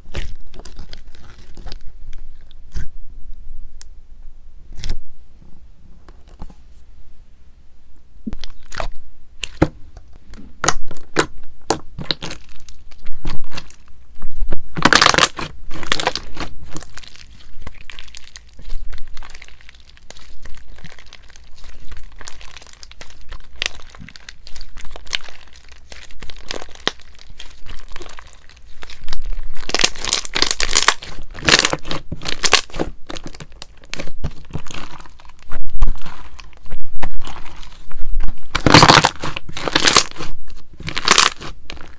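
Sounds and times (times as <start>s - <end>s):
slime clicking and crackling: 0.0s - 2.8s, 10.6s - 13.9s, 14.6s - 41.9s.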